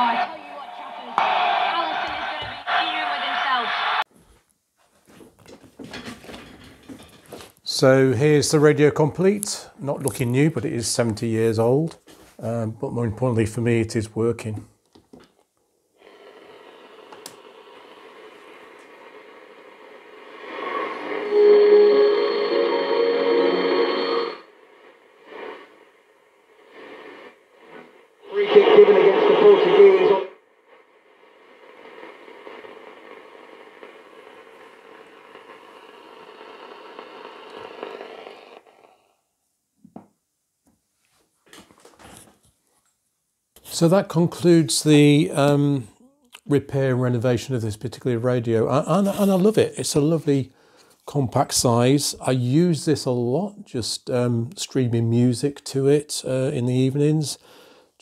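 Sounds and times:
radio station coming through: 0:00.0 - 0:04.0, 0:20.3 - 0:24.4, 0:28.2 - 0:30.4, 0:48.0 - 0:50.4
radio static hiss: 0:16.2 - 0:38.8.

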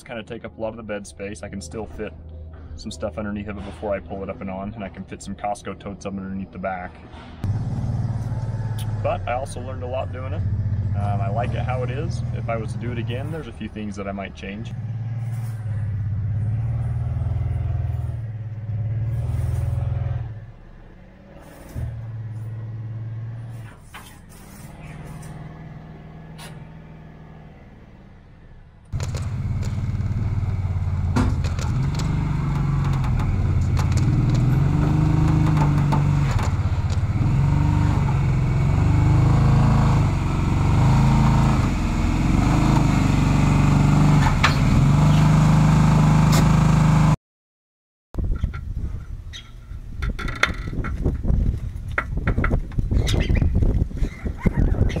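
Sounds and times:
engine revving under throttle: 0:07.4 - 0:13.6, 0:14.6 - 0:28.3, 0:28.9 - 0:47.2
knocks and clicks: 0:31.0 - 0:37.2, 0:50.0 - 0:52.9.

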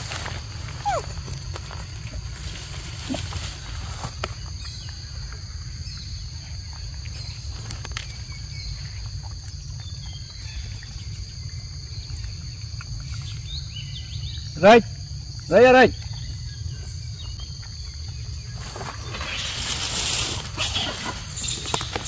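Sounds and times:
insects chirring: 0:00.0 - 0:22.0.

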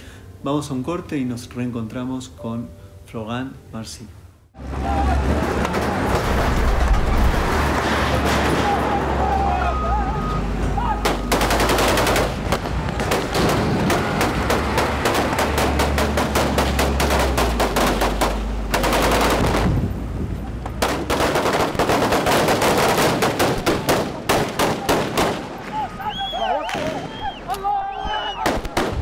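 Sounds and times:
automatic rifle fire: 0:11.0 - 0:19.7, 0:20.8 - 0:25.5.

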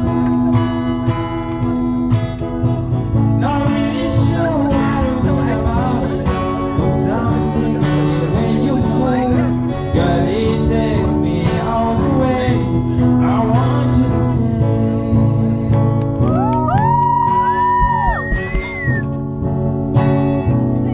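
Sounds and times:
acoustic guitar strumming: 0:00.0 - 0:20.9
man singing into microphone: 0:03.4 - 0:16.0.

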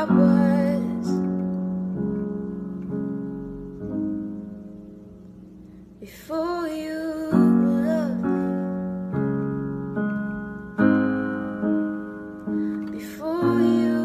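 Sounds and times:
woman singing wordlessly: 0:00.0 - 0:01.4, 0:06.0 - 0:08.8, 0:12.8 - 0:14.0
piano chords ringing: 0:00.0 - 0:14.0.

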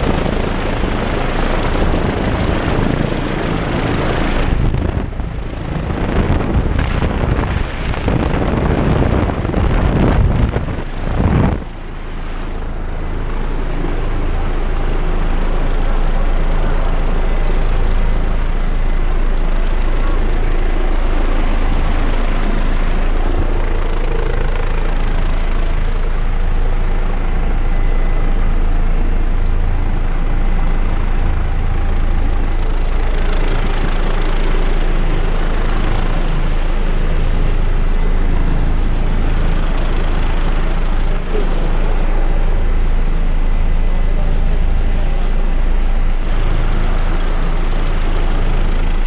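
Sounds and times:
helicopter rotor throb: 0:00.0 - 0:49.0
high turbine whine: 0:00.0 - 0:49.0.

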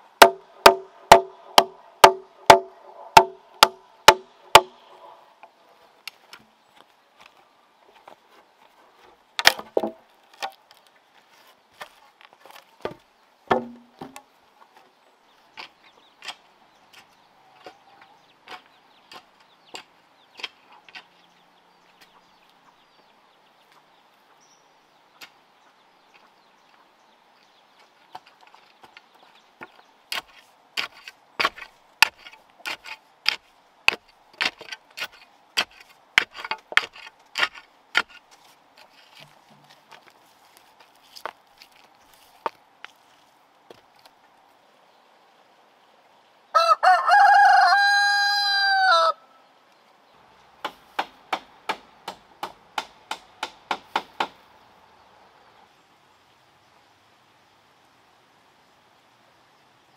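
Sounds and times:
stick ramming earth around post: 0:00.1 - 0:04.8, 0:09.4 - 0:10.8, 0:11.8 - 0:14.3, 0:28.1 - 0:42.6
wooden knocks and chops: 0:00.2 - 0:04.7, 0:09.4 - 0:10.6, 0:12.8 - 0:14.2, 0:50.6 - 0:54.4.

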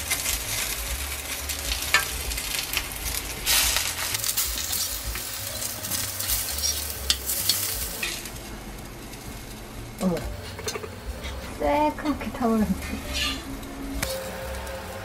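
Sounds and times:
zucchini sizzling in oil: 0:00.0 - 0:15.0
metal spatula scraping pan: 0:05.6 - 0:08.3, 0:12.8 - 0:14.7.

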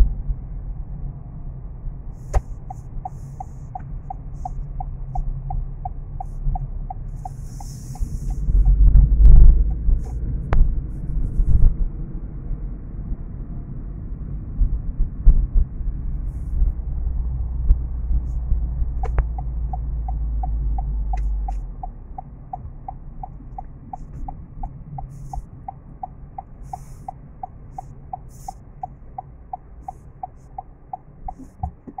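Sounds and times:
car engine and road rumble: 0:00.0 - 0:32.0
turn signal ticking: 0:02.2 - 0:10.2, 0:18.9 - 0:32.0.

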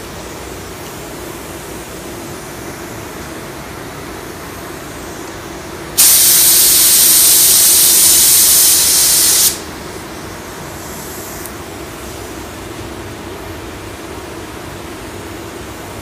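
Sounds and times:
paint spray gun hissing: 0:06.0 - 0:09.7.

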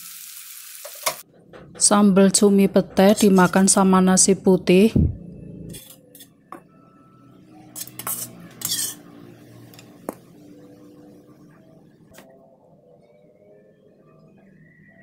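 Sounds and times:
metal spoon scraping a plate: 0:05.7 - 0:06.4, 0:07.6 - 0:09.9.

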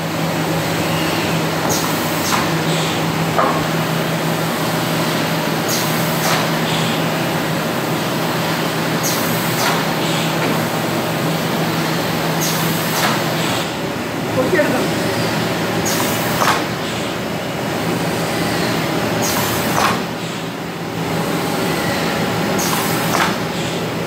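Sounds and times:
printing press humming: 0:00.0 - 0:24.0
machine hiss and knock: 0:01.0 - 0:03.9, 0:05.6 - 0:07.1, 0:09.0 - 0:10.8, 0:12.4 - 0:13.8, 0:15.8 - 0:17.2, 0:18.5 - 0:20.5, 0:21.8 - 0:23.9.

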